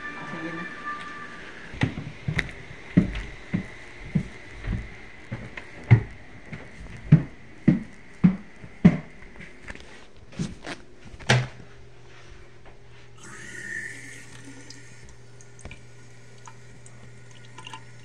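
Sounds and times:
faint high hum: 0.0 - 18.0
footsteps walking: 1.0 - 13.4.

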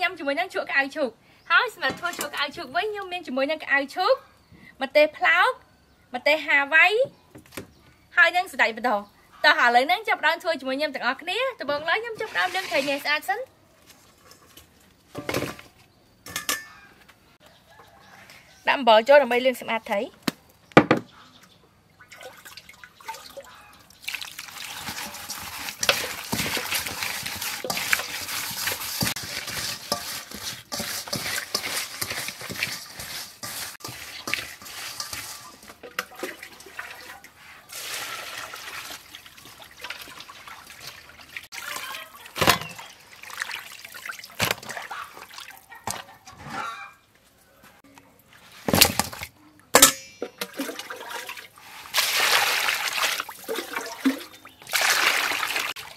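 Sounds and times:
wet rubbing of fish with salt: 24.0 - 35.8, 36.4 - 42.3, 51.5 - 53.4.

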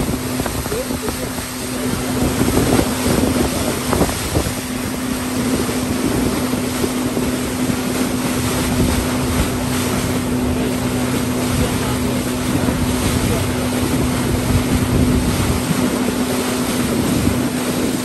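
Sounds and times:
speedboat engine humming: 0.0 - 18.0
water rushing along hull: 0.0 - 18.0
wind buffeting microphone: 0.0 - 18.0.

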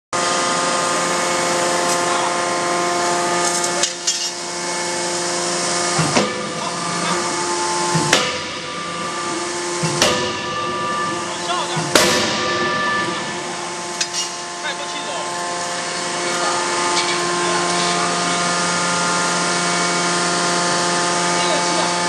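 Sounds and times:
forging hammer humming: 0.2 - 22.0
forging hammer blows: 6.0 - 14.9.

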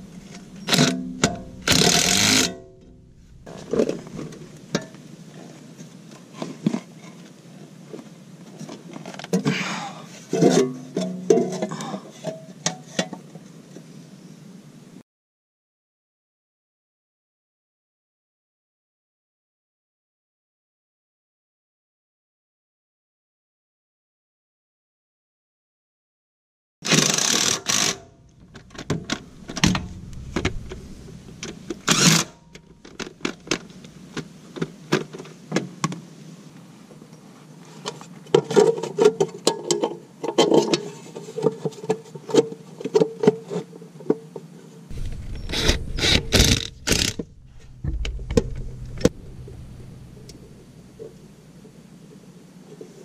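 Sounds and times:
cordless drill driving bolts: 0.3 - 2.6, 26.9 - 29.7, 31.8 - 33.7, 45.0 - 47.3
metal clicks and knocks: 44.9 - 51.1.

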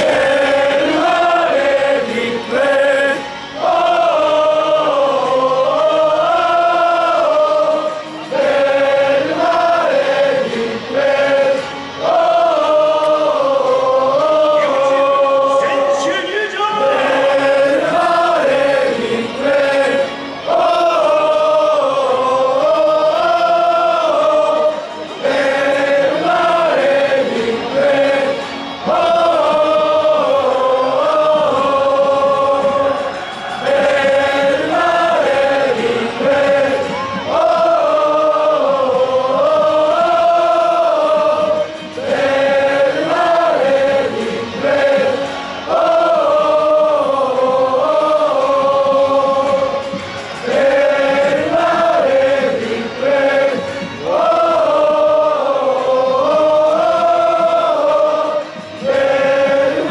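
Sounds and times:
crowd singing a chant: 0.0 - 59.9.

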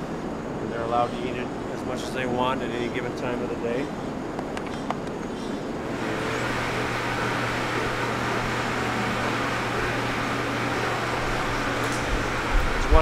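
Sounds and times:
milking machine humming and hissing: 5.8 - 13.0.

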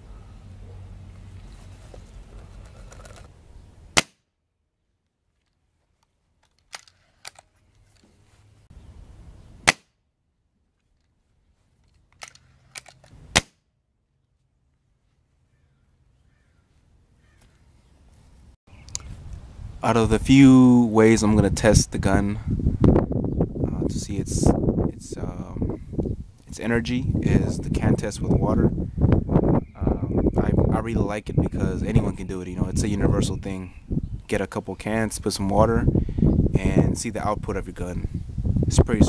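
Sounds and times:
air rifle shot cracks: 4.0 - 4.2, 9.6 - 9.9, 13.3 - 13.6.

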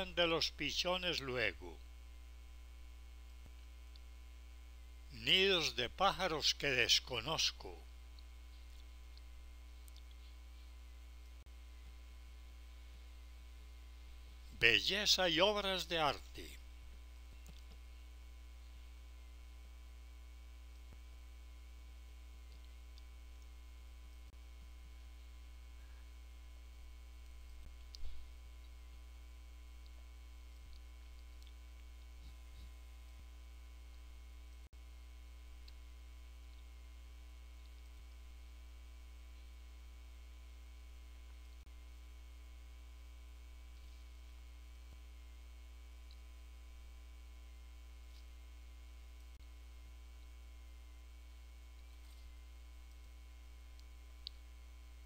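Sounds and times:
electrical mains hum: 0.0 - 55.0
faint clicks: 8.1 - 10.4.

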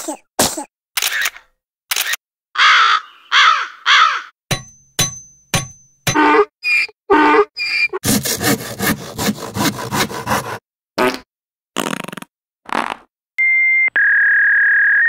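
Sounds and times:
short squawks: 6.1 - 8.0.

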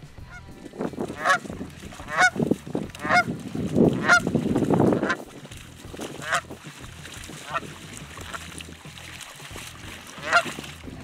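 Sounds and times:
dog splashing through water: 0.7 - 11.0
goose honks: 1.1 - 2.4, 3.0 - 3.3, 3.9 - 4.3, 6.2 - 6.4, 7.4 - 8.4, 10.2 - 10.6.

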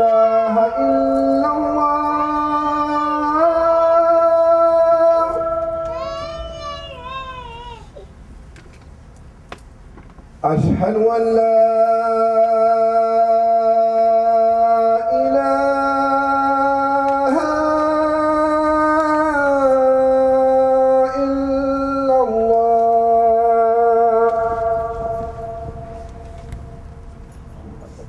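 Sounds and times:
man singing call to prayer: 0.0 - 7.8, 10.4 - 27.2.

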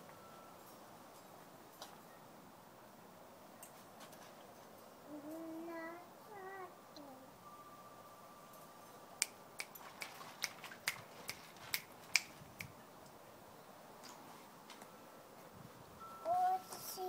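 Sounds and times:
wooden figures clicking together: 9.6 - 12.3.

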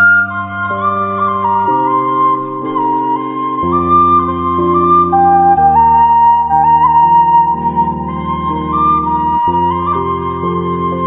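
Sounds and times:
slow melody over sustained chords: 0.0 - 11.0.

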